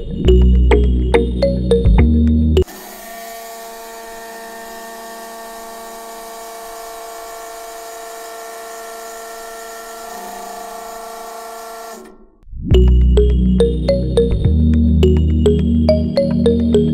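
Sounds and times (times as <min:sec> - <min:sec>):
electric toy motor whining: 0:02.6 - 0:12.2.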